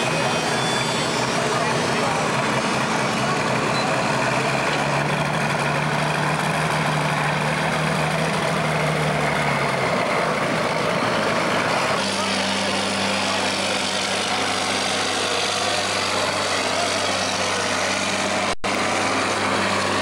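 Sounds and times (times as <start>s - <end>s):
tractor diesel engine running: 0.0s - 20.0s.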